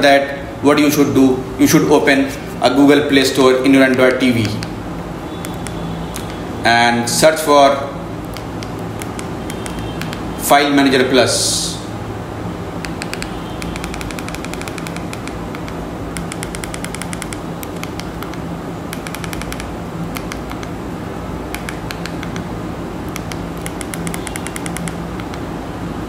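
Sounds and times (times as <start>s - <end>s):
rapid keyboard navigation clicks: 3.6s - 6.4s, 8.2s - 10.3s, 12.8s - 20.8s, 21.5s - 25.5s
steady low hum: 11.5s - 26.0s.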